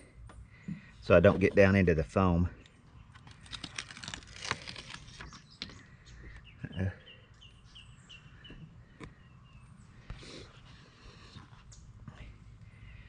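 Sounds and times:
paper crinkling and clicks: 3.1 - 5.8
backing paper peeling off foam: 3.2 - 5.5.

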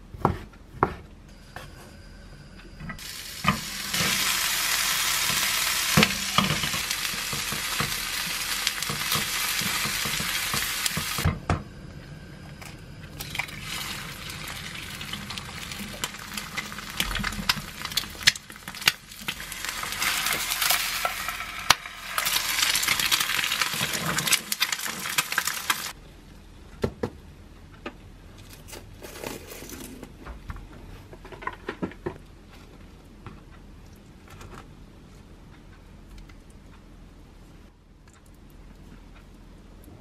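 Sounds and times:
egg sizzling in pan: 3.0 - 11.3, 13.2 - 26.0.

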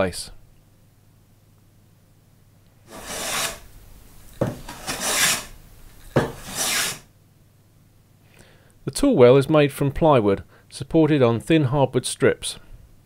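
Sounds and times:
hand plane cutting wood: 2.9 - 3.7, 4.4 - 5.6, 6.2 - 7.1.

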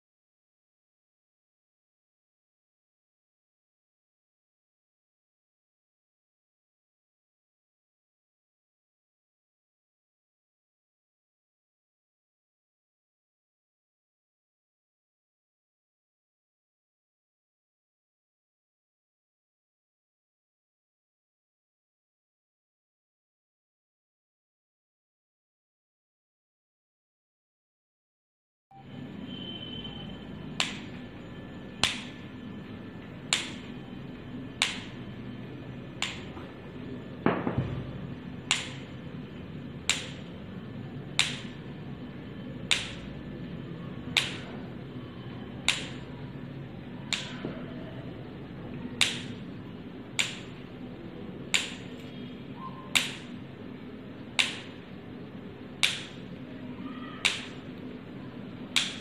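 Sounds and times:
steady low hum: 28.8 - 59.0.

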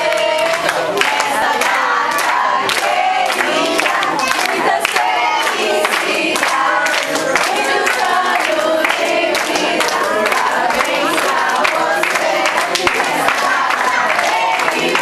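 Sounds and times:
crowd singing and shouting: 0.0 - 15.0
hand clapping: 0.0 - 15.0.

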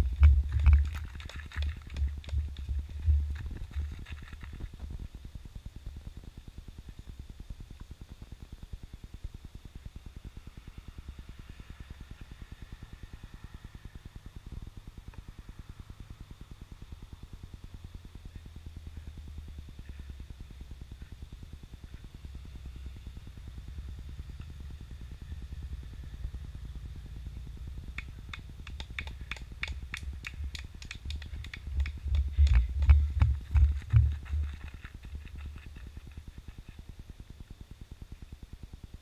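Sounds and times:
wind rumble on microphone: 0.0 - 39.0
people clapping: 0.2 - 3.1, 28.0 - 35.8.

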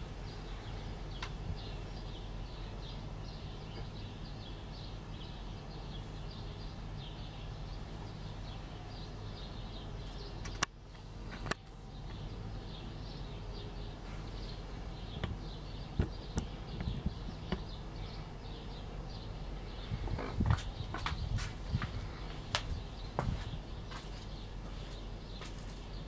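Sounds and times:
sharp clicks: 10.4 - 10.8.

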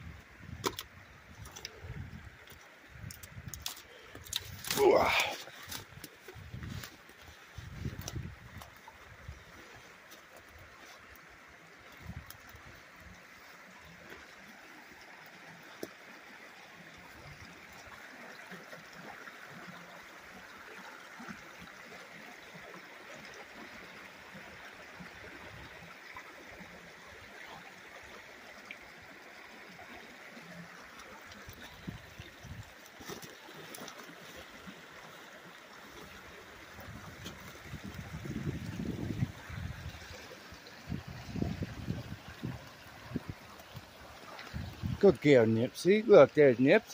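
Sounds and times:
river rushing over rocks: 4.7 - 5.6.

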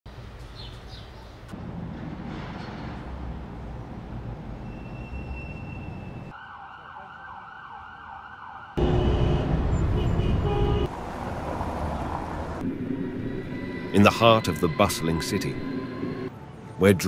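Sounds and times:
street traffic noise: 0.1 - 17.0
siren wailing: 6.1 - 9.9.

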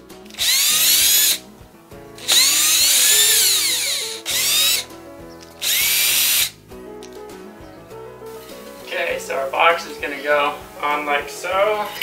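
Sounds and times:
cordless drill whining: 0.3 - 1.4, 2.2 - 4.9, 5.6 - 6.6.

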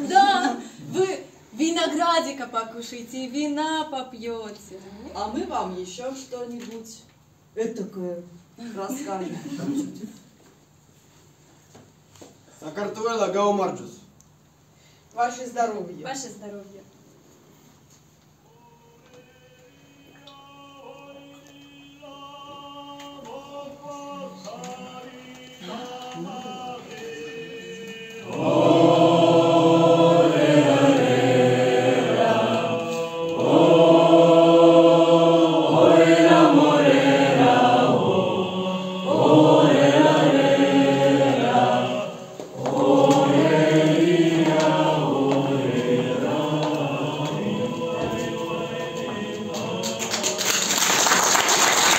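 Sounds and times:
mixed choir singing: 18.5 - 51.9.

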